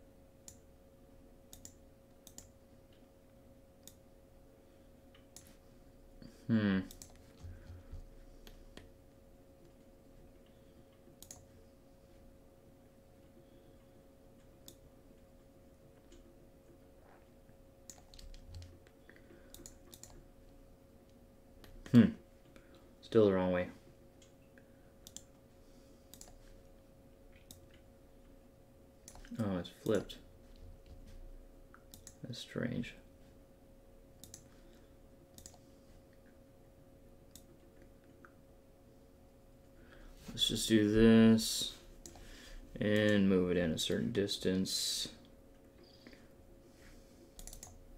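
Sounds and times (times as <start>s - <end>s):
faint steady hum: 0.0s - 47.9s
computer mouse clicks: 0.4s - 0.7s, 1.5s - 3.0s, 3.8s - 4.0s, 5.1s - 5.6s, 6.8s - 7.7s, 10.4s - 11.5s, 14.4s - 14.8s, 17.8s - 20.2s, 25.0s - 25.4s, 26.1s - 26.5s, 27.3s - 27.9s, 29.0s - 30.1s, 31.7s - 32.2s, 34.2s - 34.6s, 35.3s - 36.3s, 37.3s - 38.4s, 42.0s - 42.3s, 47.4s - 47.8s
mouse and keyboard clicks: 11.2s - 11.5s, 17.9s - 20.2s, 26.1s - 26.4s, 35.3s - 35.6s, 47.4s - 47.8s.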